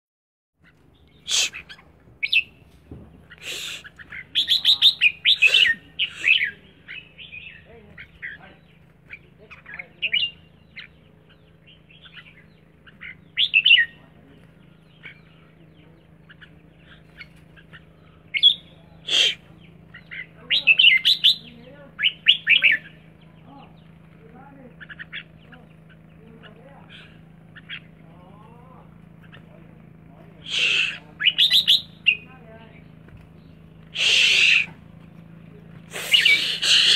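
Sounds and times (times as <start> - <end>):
faint low hum: 0.6 - 36.9
bird singing warbling whistles: 30.5 - 32.2.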